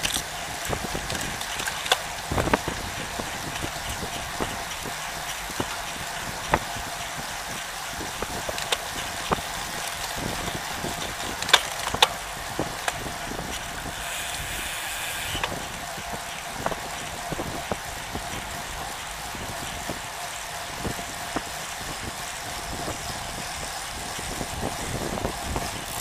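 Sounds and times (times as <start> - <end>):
bike clicks and knocks: 0.0 - 18.6, 24.0 - 26.0
road noise: 0.0 - 26.0
wind rush: 20.7 - 26.0.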